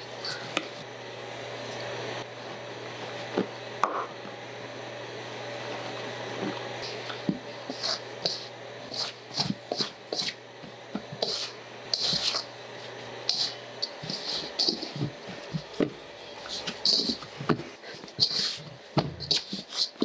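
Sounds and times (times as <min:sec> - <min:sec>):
steady low hum: 0:00.0 - 0:20.0
dough being kneaded in a bowl: 0:05.8 - 0:20.0.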